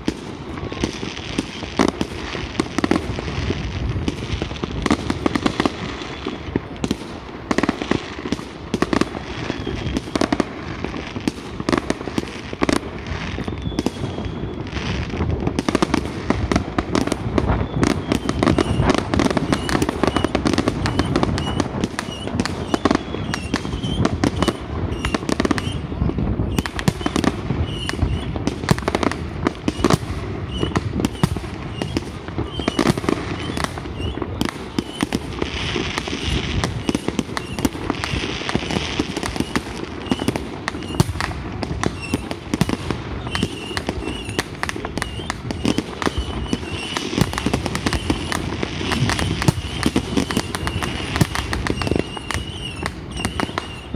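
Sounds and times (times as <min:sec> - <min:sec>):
fireworks bangs and crackles: 0:00.0 - 0:53.9.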